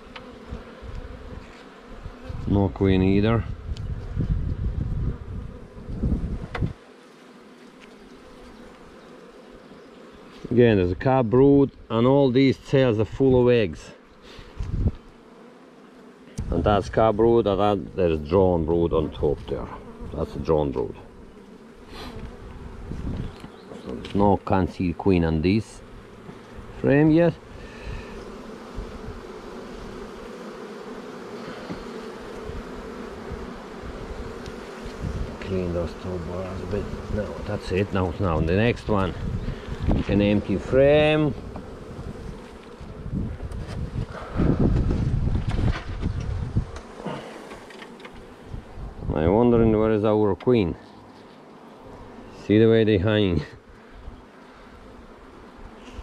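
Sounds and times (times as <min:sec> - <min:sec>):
honeybees buzzing: 0:00.0 - 0:56.0.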